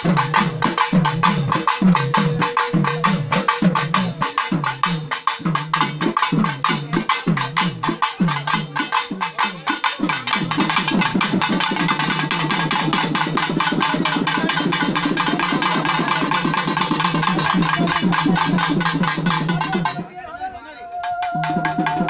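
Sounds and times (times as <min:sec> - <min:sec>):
drums beating fast rhythm: 0:00.0 - 0:20.1, 0:20.9 - 0:22.0.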